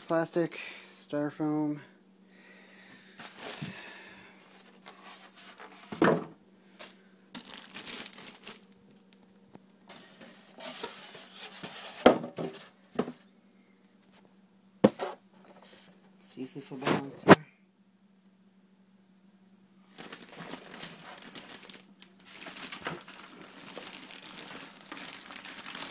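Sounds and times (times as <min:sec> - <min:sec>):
plastic bag crinkling: 0:03.2 - 0:05.9, 0:06.8 - 0:09.2, 0:19.9 - 0:25.9
styrofoam rustling: 0:03.2 - 0:06.0, 0:06.8 - 0:09.1, 0:09.9 - 0:12.8, 0:19.9 - 0:25.9.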